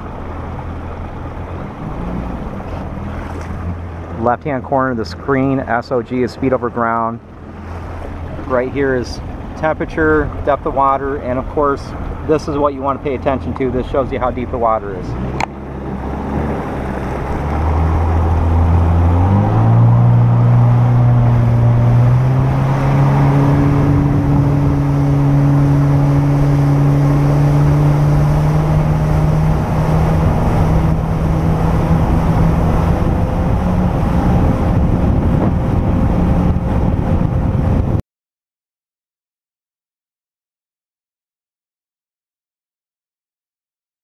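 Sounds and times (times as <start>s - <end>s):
jet ski engine accelerating: 0.0s - 38.0s
water rushing: 0.0s - 38.0s.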